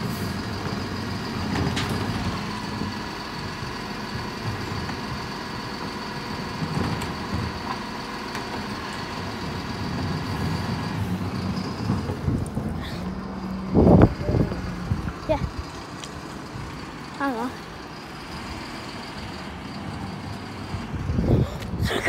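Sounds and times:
bin lorry running with high whine: 0:00.0 - 0:22.0.

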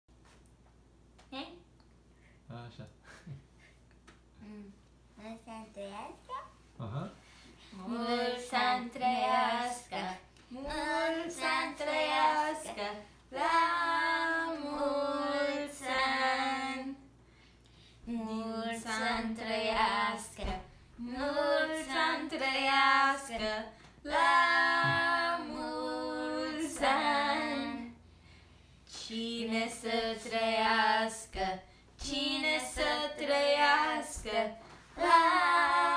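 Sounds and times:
children singing: 0:21.1 - 0:27.9.

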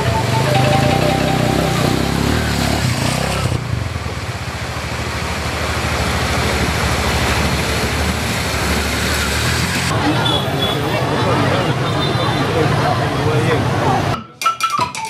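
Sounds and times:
motorcycle engines running: 0:00.0 - 0:10.1
water splashing: 0:02.1 - 0:09.9.

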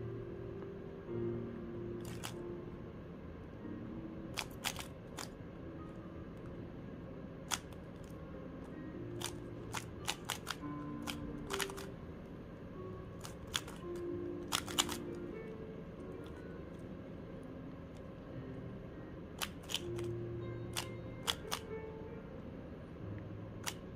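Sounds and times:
background music: 0:00.0 - 0:23.9
puzzle cube layers clicking: 0:02.0 - 0:02.4, 0:04.3 - 0:05.4, 0:07.5 - 0:08.2, 0:09.1 - 0:12.0, 0:13.2 - 0:15.3, 0:19.4 - 0:21.7, 0:23.6 - 0:23.9.

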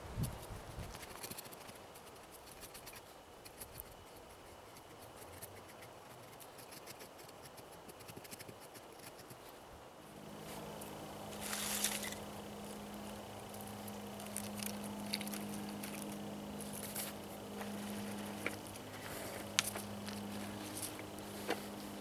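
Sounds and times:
knife scraping wood: 0:00.8 - 0:09.4.

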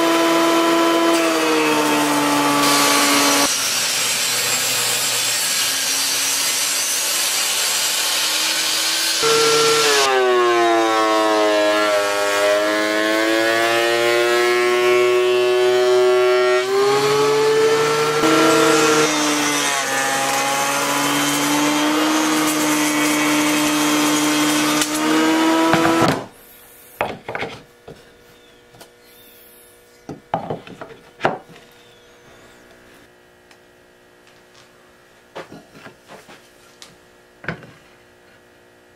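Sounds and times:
power saw cutting wood: 0:00.0 - 0:26.3.

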